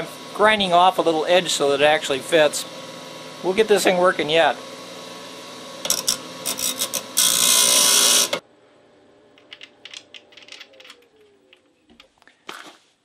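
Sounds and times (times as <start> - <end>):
bench grinder running: 0.0 - 8.4
metal grinding on wheel: 5.8 - 8.4
small metal clicks: 9.4 - 12.1.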